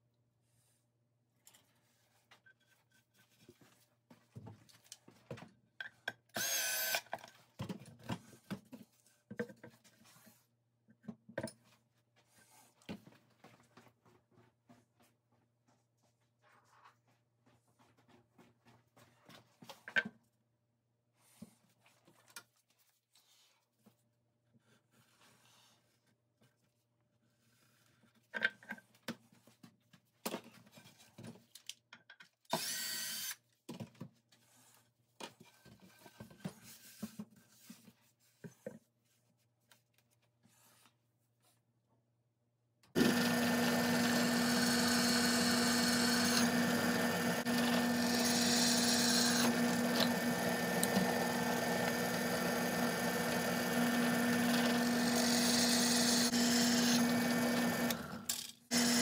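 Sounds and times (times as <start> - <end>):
drill press boring through iron: 6.4 - 7.0, 43.0 - 59.0.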